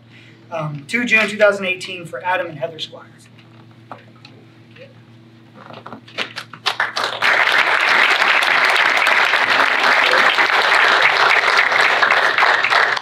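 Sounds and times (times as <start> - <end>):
audience applauding: 6.2 - 13.0.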